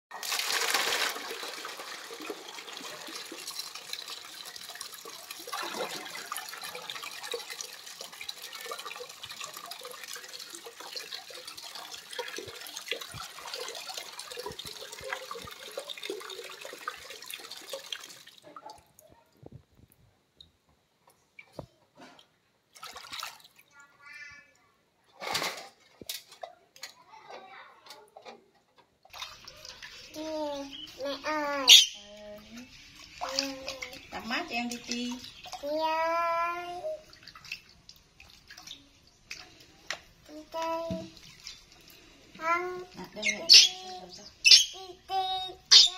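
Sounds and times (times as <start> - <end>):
water pouring into basin: 0.1 - 18.8, 22.8 - 23.6, 29.1 - 31.7, 32.3 - 44.2.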